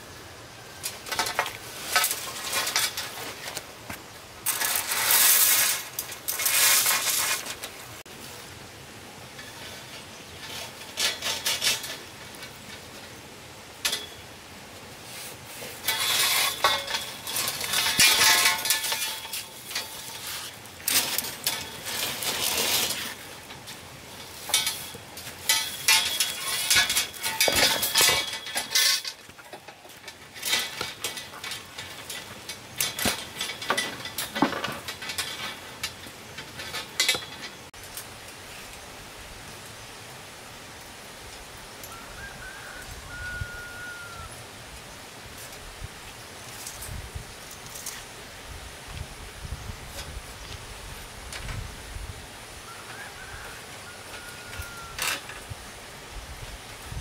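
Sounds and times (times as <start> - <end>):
tool scraping hard surface: 15.1 - 23.3.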